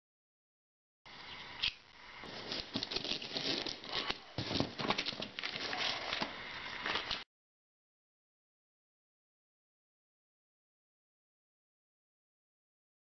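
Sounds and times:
paper envelope crinkling: 2.2 - 7.2.

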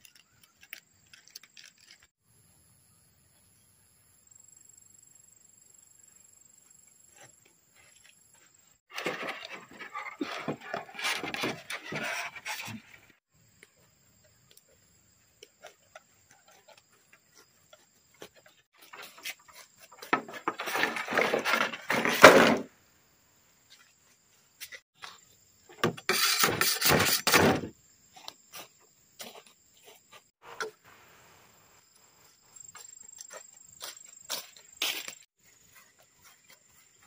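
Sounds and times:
bamboo poles rustling and scraping: 0.0 - 2.2, 7.1 - 22.7, 23.6 - 31.0, 32.0 - 37.0
insects trilling: 27.7 - 37.0.

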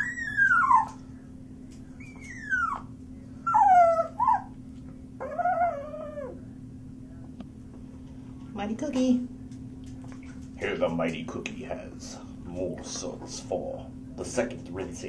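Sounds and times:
puppy whining and howling: 0.0 - 1.2, 2.0 - 4.6, 5.2 - 6.5.

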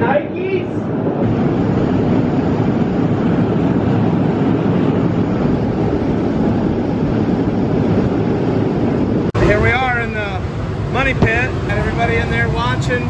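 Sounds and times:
grain elevator and conveyors running: 9.4 - 13.0.

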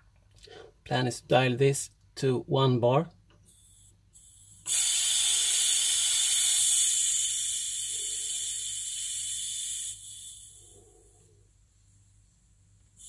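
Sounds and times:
valve venting gas hiss: 3.4 - 13.0.

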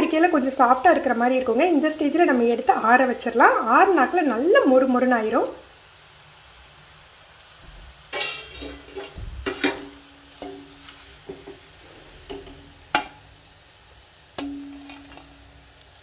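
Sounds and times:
hot oil sizzling: 0.0 - 16.0
ladle scraping metal pan: 8.1 - 13.1, 14.4 - 15.5
sharp clanks of pan ringing: 8.2 - 10.7, 14.4 - 15.5.

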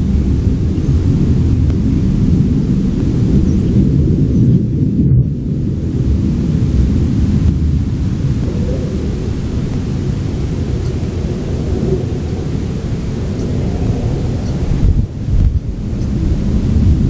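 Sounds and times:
deep rumble: 0.0 - 17.0.

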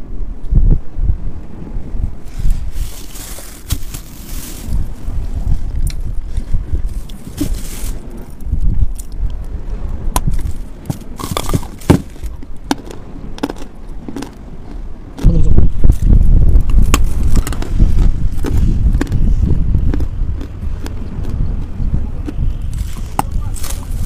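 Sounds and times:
wind buffeting microphone: 0.0 - 24.0
chalk crunching while chewed: 5.8 - 9.4, 11.2 - 24.0.

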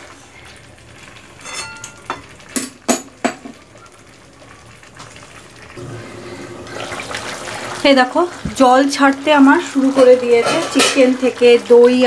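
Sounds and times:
marinade sizzling: 0.0 - 12.0.

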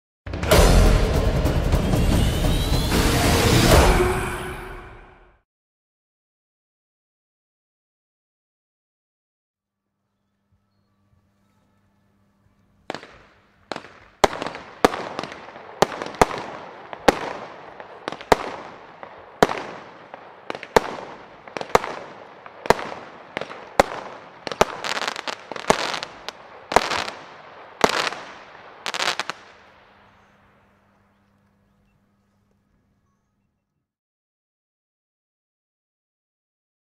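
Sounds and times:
firework crackling: 12.8 - 30.9.

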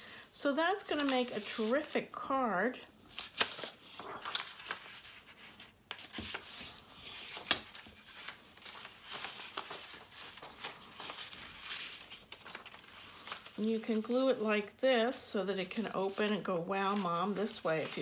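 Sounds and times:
paper rustling and sliding: 0.8 - 2.0, 3.1 - 14.0, 15.8 - 18.0.

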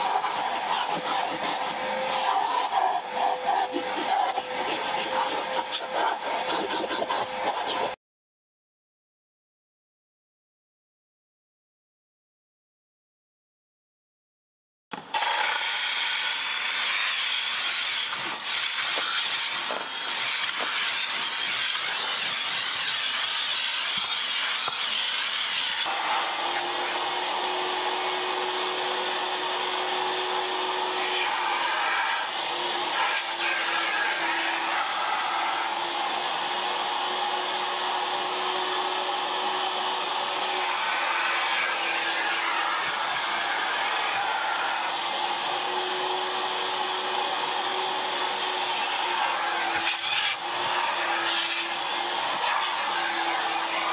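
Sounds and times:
electric blower motor running: 0.0 - 8.0, 15.0 - 53.9
loud hiss of cleaning tool: 15.3 - 37.6, 38.2 - 53.9.

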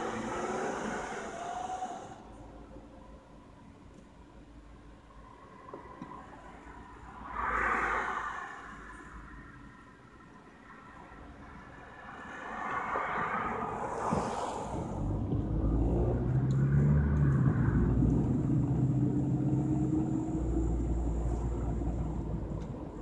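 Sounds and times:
road rumble: 0.0 - 23.0
car engine accelerating: 14.8 - 23.0.

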